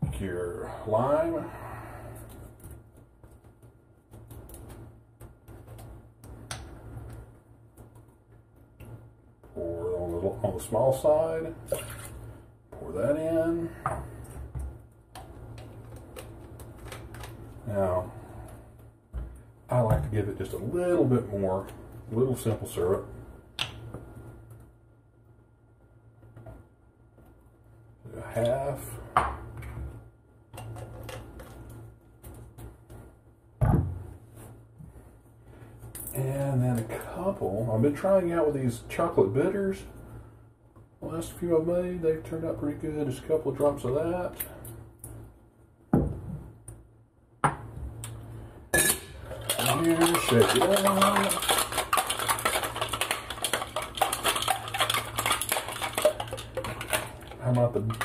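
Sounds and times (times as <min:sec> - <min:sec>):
low steady hum: 0:00.0 - 0:58.0
ice rattling in cocktail shaker: 0:48.8 - 0:58.0.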